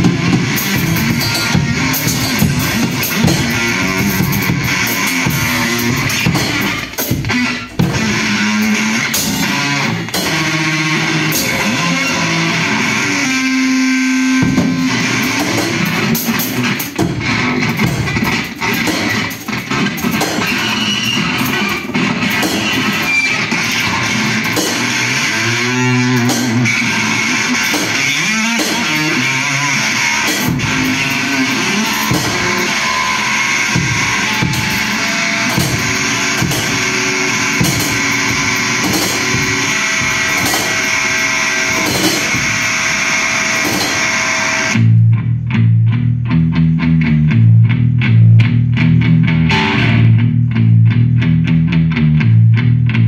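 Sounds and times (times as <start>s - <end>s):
drum kit: 0.0s - 53.0s
electric bass guitar through effects: 0.0s - 53.0s
heavy low bass notes: 0.0s - 53.0s.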